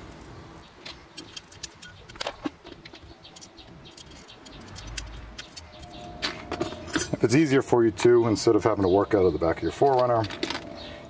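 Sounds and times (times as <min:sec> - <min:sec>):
metal fasteners clinking: 0:00.6 - 0:08.1, 0:09.8 - 0:11.0.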